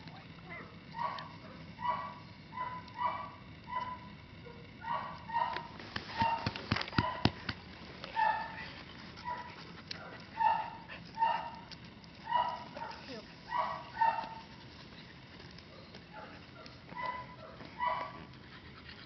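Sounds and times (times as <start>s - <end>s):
dog barking high-pitched: 1.0s - 7.4s, 8.2s - 8.6s, 9.2s - 11.6s, 12.2s - 14.4s, 16.1s - 18.2s.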